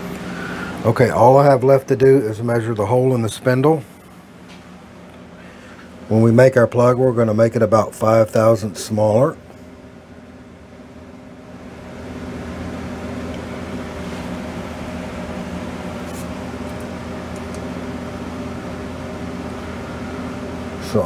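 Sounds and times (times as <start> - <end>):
motor humming: 0.0 - 6.0.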